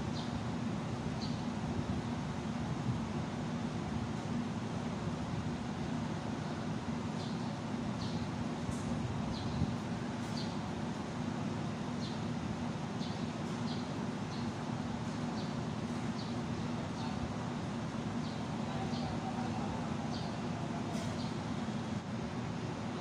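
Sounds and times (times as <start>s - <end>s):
small birds chirping: 0.0s - 0.4s, 1.2s - 1.5s, 6.4s - 8.4s, 9.3s - 10.7s, 11.8s - 21.7s
steady low hum: 0.0s - 23.0s.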